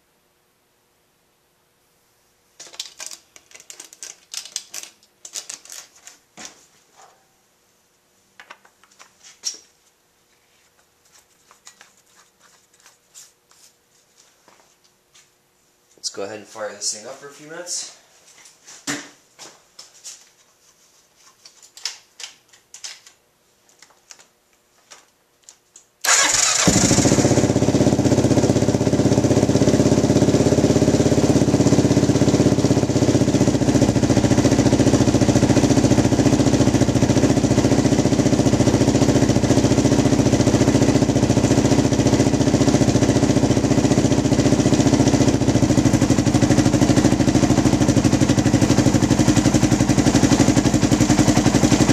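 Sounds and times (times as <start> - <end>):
motorcycle engine idling: 26.1 - 51.9.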